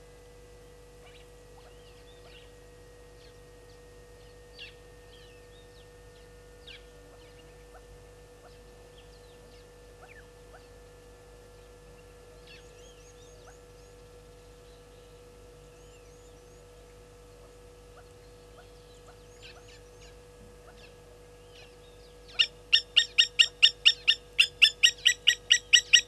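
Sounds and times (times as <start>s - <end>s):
electrical hum: 0.0s - 26.0s
bird chirps: 18.6s - 26.0s.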